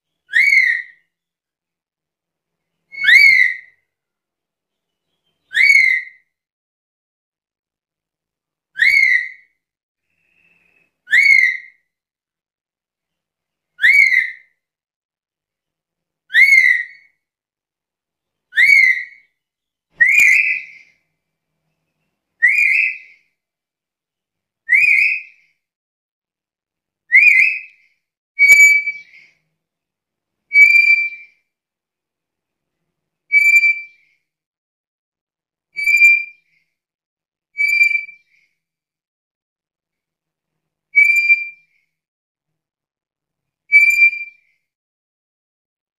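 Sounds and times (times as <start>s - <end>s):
parrot whistling short notes: 20.0s - 20.9s, 28.4s - 29.3s.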